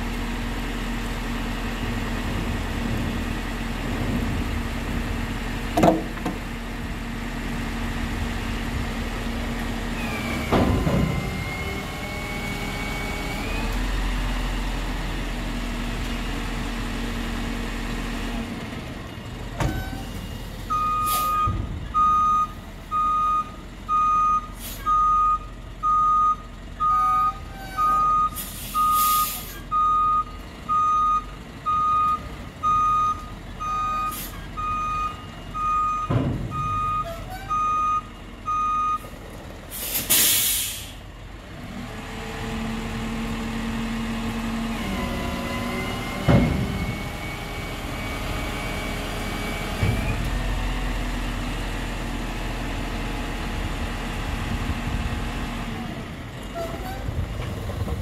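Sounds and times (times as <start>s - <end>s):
diesel engine running: 0.0s - 58.0s
truck reversing beeper: 19.6s - 41.0s
air brakes hissing: 21.1s - 21.4s, 24.6s - 24.9s, 28.3s - 29.6s, 39.7s - 41.0s.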